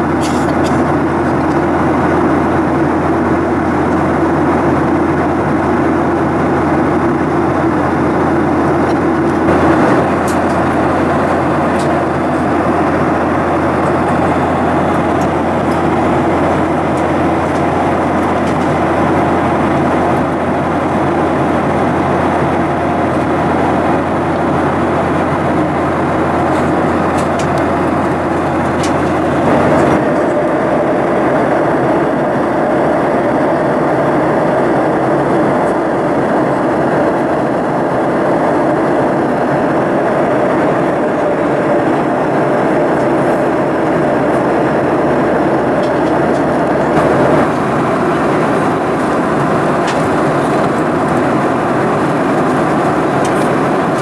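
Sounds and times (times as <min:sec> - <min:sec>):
air rushing along fuselage: 0:00.0 - 0:54.0
jet engines droning: 0:00.0 - 0:54.0.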